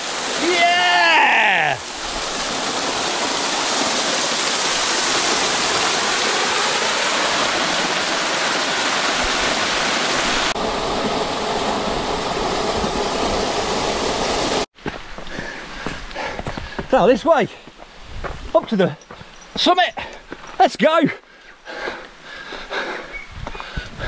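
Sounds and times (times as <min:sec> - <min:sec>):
waterfall splashing into pool: 0:00.0 - 0:14.7.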